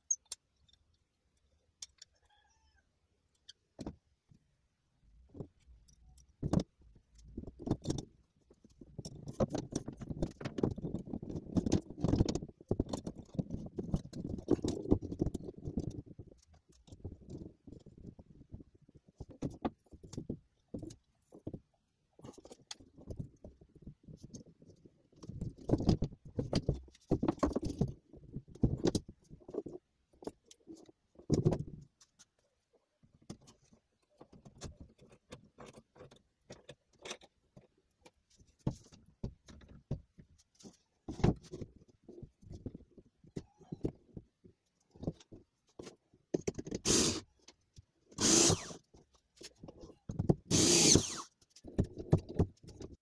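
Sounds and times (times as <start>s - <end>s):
metal parts scraping on wood: 48.2s - 48.8s, 50.5s - 51.3s.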